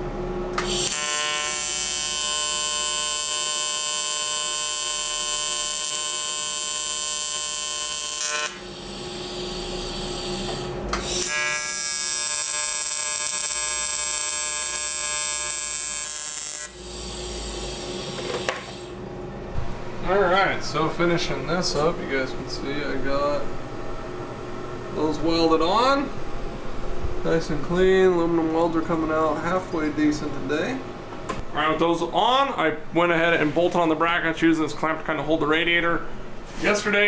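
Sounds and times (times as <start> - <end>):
welder arc buzzing: 0.5 - 19.1.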